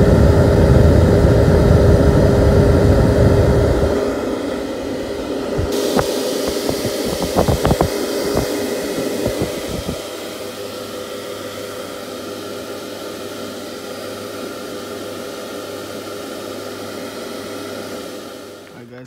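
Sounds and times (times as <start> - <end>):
blower fans whooshing and humming: 0.0 - 19.0
sharp knocks and bumps: 5.5 - 10.0.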